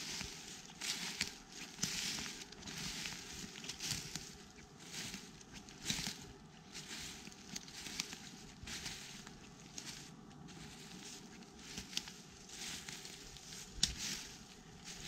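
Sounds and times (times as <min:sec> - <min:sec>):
dry leaves and twigs rustling: 0:00.0 - 0:15.0
twigs snapping: 0:13.8 - 0:14.2.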